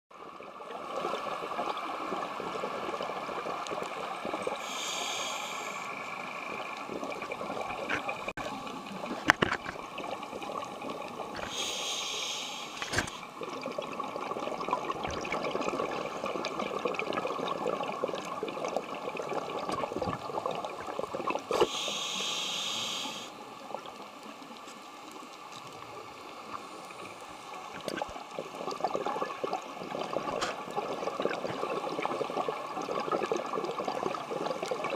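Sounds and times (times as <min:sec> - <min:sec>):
underwater watery hiss: 0:04.0 - 0:09.0, 0:11.4 - 0:13.3, 0:21.3 - 0:23.7
scuba regulator breathing: 0:04.5 - 0:06.6, 0:11.4 - 0:13.2, 0:21.5 - 0:23.4.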